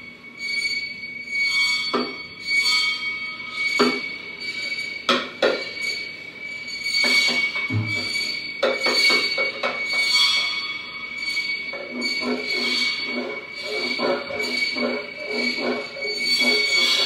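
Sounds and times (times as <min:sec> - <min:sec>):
high metallic squealing ring: 0:00.0 - 0:17.0
sharp drum hits: 0:07.7 - 0:08.2.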